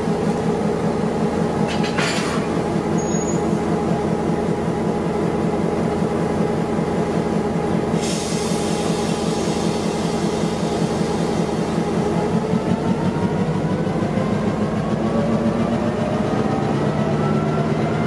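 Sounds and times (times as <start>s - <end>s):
diesel locomotive engine idling: 0.0s - 18.0s
hiss: 7.9s - 12.2s.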